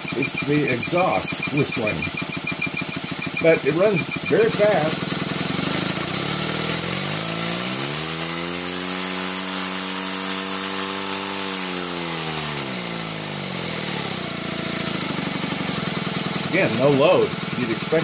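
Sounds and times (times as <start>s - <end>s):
model steam engine running: 0.0s - 18.0s.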